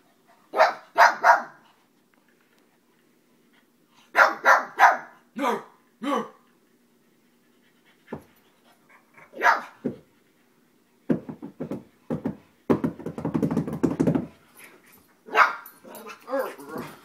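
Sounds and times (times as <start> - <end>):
dogs barking: 0.5 - 1.6, 4.1 - 5.2, 9.3 - 9.8, 15.3 - 16.7.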